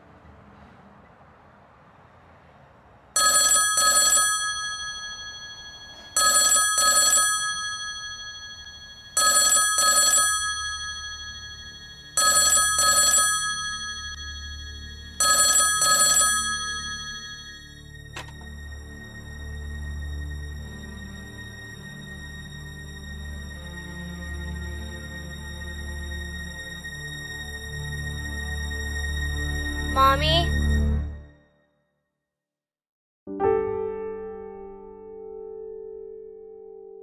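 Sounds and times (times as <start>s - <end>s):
payphone ringing: 3.2s - 18.4s
handset lifted click: 18.2s - 18.5s.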